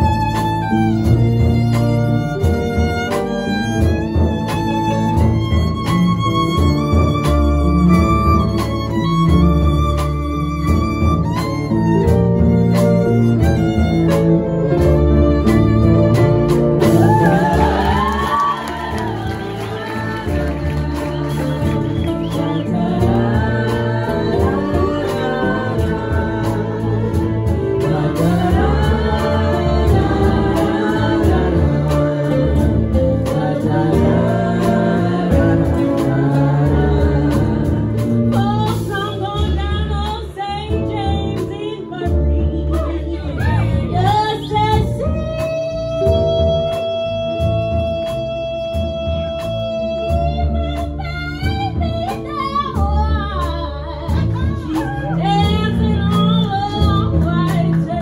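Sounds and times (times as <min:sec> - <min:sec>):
strings: 0:00.0 - 0:39.2
electric guitar: 0:00.0 - 0:39.7
drum kit beat: 0:00.0 - 0:58.0
live band playing: 0:00.0 - 0:58.0
voices singing together: 0:16.9 - 0:38.8.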